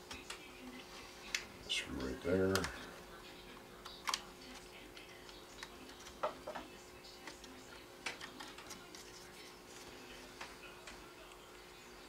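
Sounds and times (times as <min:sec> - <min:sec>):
small parts clicking and tapping: 0:05.2 - 0:09.0.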